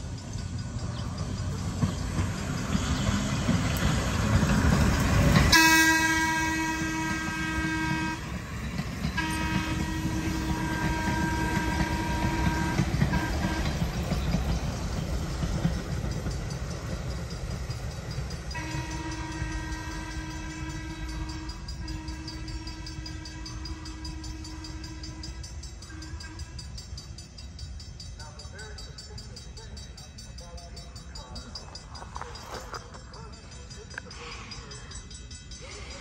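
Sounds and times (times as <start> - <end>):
train wheels clattering on rails: 0.0 - 36.0
train horn blasts: 5.4 - 14.0, 18.5 - 26.7.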